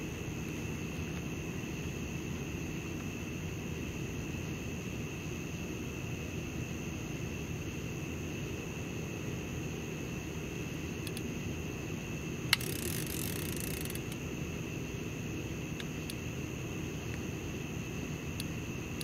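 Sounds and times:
fishing reel ratcheting clicks: 0:12.5 - 0:14.2.

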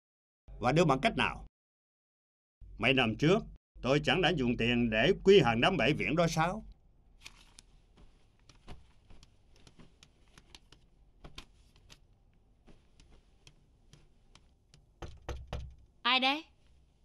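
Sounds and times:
rustling of cloth and paper: 0:07.2 - 0:14.6, 0:16.5 - 0:17.0
parcels knocking on wooden table: 0:14.8 - 0:15.8.

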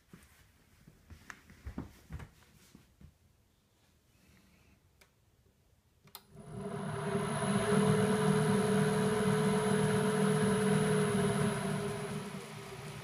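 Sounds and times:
lathe motor humming with high whine: 0:06.3 - 0:13.0.

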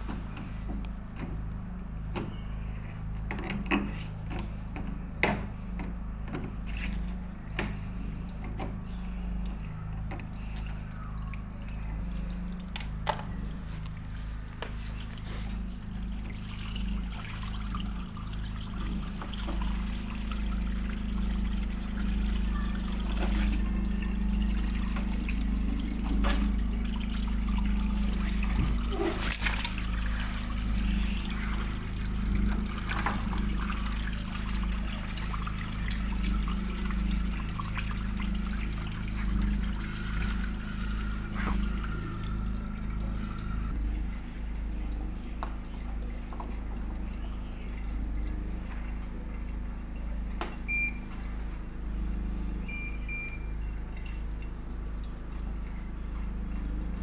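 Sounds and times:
steady low hum: 0:00.0 - 0:57.0
water splashing onto tiled floor: 0:28.2 - 0:30.5.

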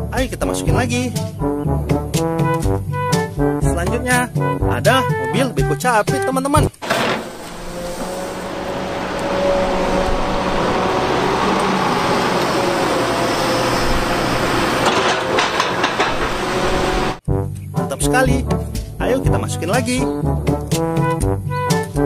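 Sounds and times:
excavator diesel engine: 0:06.8 - 0:17.2
rushing surf: 0:06.8 - 0:17.2.

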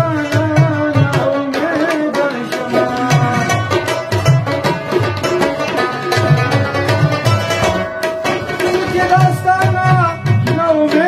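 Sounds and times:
plucked lute notes: 0:00.0 - 0:11.0
tabla drumming: 0:00.0 - 0:11.0.

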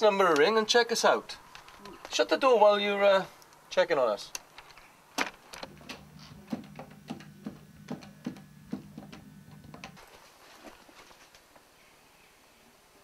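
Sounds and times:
low steady hum: 0:05.0 - 0:10.0
telephone buttons clicking: 0:05.6 - 0:10.0.

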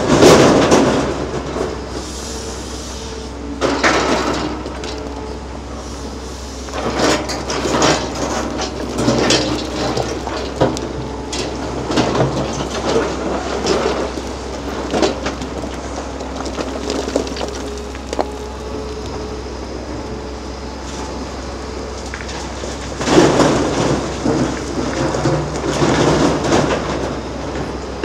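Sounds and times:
excavator diesel engine running: 0:00.0 - 0:28.0
bucket scraping rock: 0:06.7 - 0:18.6
stones clattering: 0:12.0 - 0:18.5.

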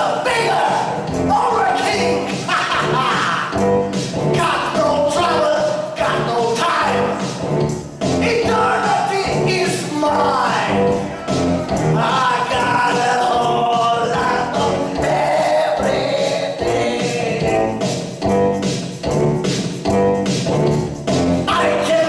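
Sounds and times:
percussion: 0:00.0 - 0:22.0
group singing: 0:11.9 - 0:17.8.

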